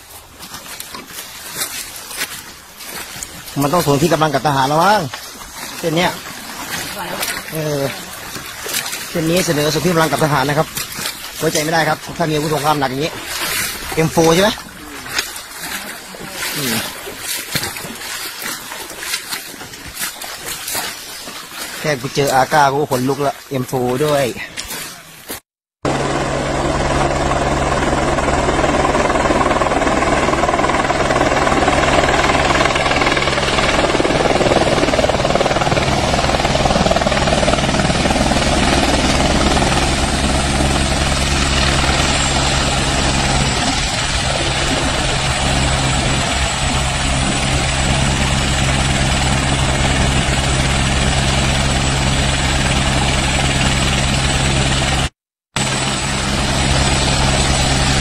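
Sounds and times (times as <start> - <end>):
helicopter rotor and engine drone: 0.1 - 22.8, 25.8 - 58.0.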